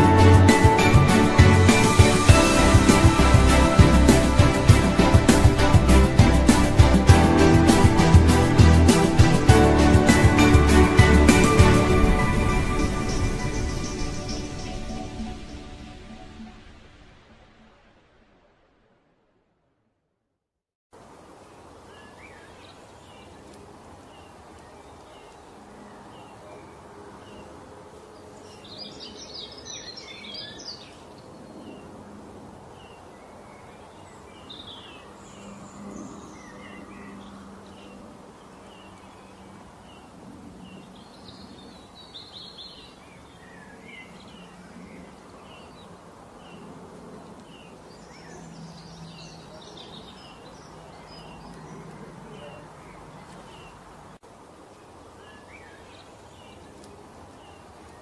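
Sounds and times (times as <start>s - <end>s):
low hum: 0.0s - 19.9s
outdoor ambience hiss: 0.0s - 19.9s, 20.9s - 58.0s
songbirds chirping: 21.0s - 58.0s.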